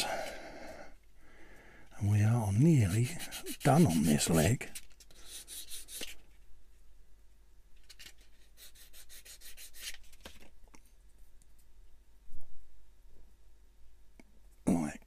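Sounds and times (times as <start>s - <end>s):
sanding scraping strokes: 2.6s - 6.2s, 8.5s - 10.0s.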